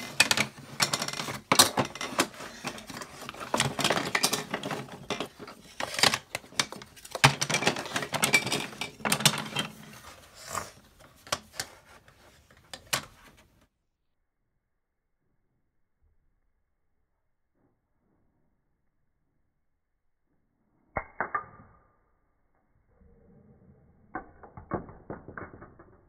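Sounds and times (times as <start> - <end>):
plastic bricks clattering on a table: 0.0 - 11.8, 24.2 - 26.0.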